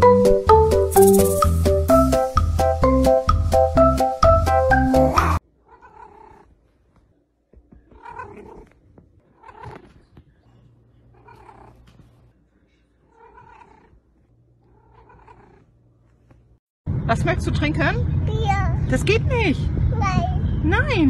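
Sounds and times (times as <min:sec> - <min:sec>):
cat meowing: 0:05.6 - 0:06.6, 0:07.8 - 0:10.1, 0:11.1 - 0:12.1, 0:13.1 - 0:14.0, 0:14.7 - 0:15.6
cat purring: 0:05.6 - 0:07.0, 0:07.7 - 0:12.4, 0:13.1 - 0:16.6.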